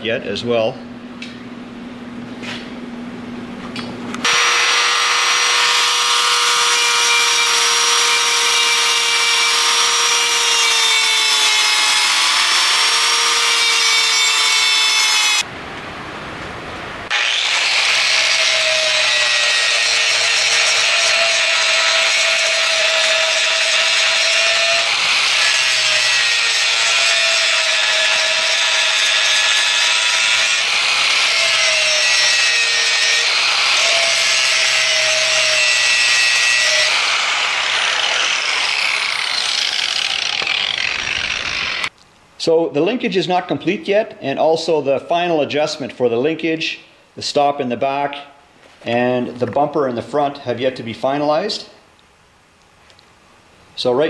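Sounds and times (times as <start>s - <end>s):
angle grinder grinding steel: 4.2s - 15.4s, 17.1s - 41.9s.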